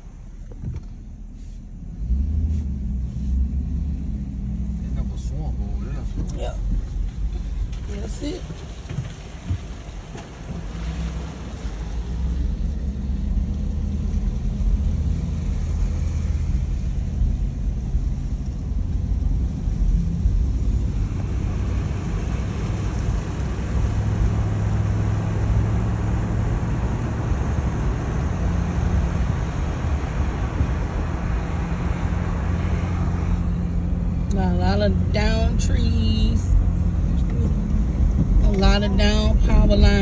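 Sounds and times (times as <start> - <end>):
road and tyre noise: 0.0 - 40.0
truck engine hum: 0.0 - 40.0.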